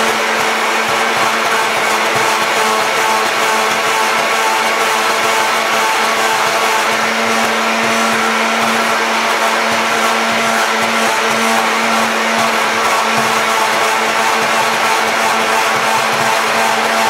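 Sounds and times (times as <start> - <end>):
immersion blender humming: 0.0 - 17.0.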